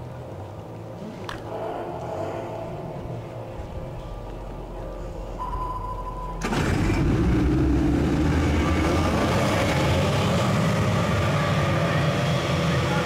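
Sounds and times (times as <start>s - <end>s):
steady high tone: 1.5s - 6.6s.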